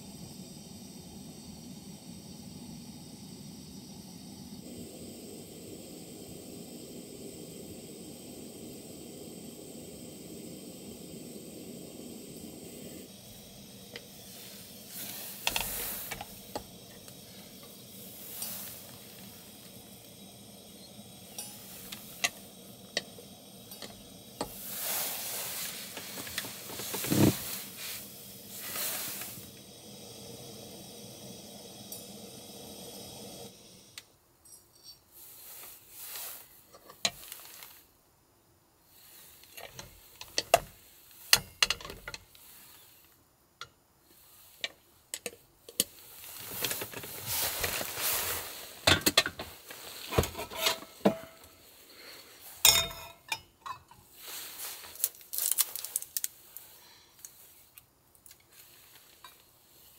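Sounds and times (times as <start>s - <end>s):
gas stove hiss and sizzle: 0.0s - 59.9s
utensils clinking on cookware: 48.9s - 51.4s, 52.6s - 54.1s
stirring or scraping: 49.7s - 51.5s.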